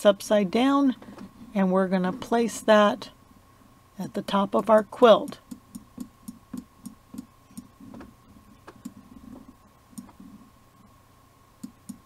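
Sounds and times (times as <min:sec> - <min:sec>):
computer mouse clicking: 0:04.8 - 0:09.0, 0:09.9 - 0:10.2, 0:11.6 - 0:12.0.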